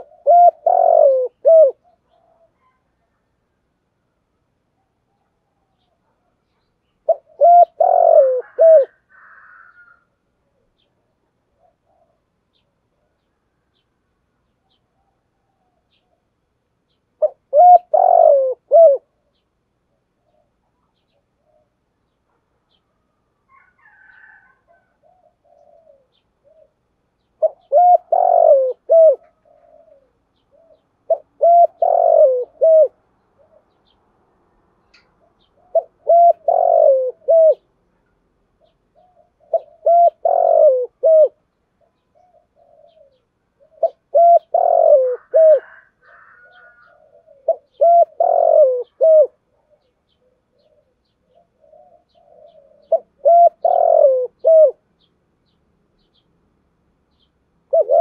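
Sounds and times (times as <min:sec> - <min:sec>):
dove cooing: 0:00.0 - 0:03.4, 0:07.0 - 0:13.8, 0:17.2 - 0:21.9, 0:23.5 - 0:34.0, 0:35.2 - 0:37.8, 0:38.6 - 0:55.0, 0:57.6 - 0:58.0.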